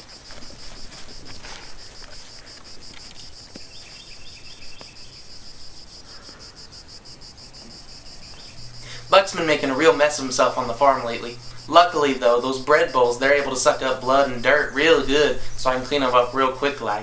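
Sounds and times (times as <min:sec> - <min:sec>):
insect-like chirping: 0:00.0 - 0:17.0.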